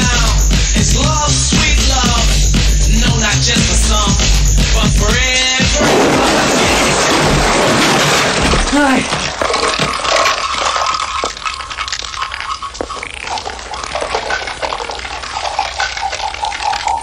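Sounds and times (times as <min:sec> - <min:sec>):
cans and bottles clattering: 0:04.8 - 0:17.0.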